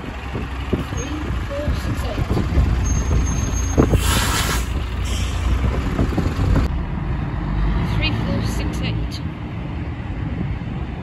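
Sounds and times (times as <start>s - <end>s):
diesel bus engines rumbling: 0.0s - 11.0s
brake air hiss: 3.9s - 5.5s.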